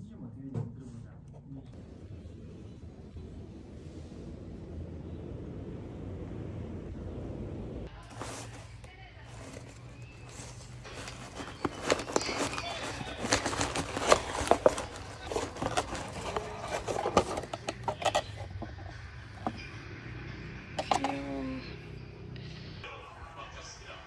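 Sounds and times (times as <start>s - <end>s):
low steady hum: 0.0s - 22.9s
paper and cardboard box rustling: 8.0s - 19.7s.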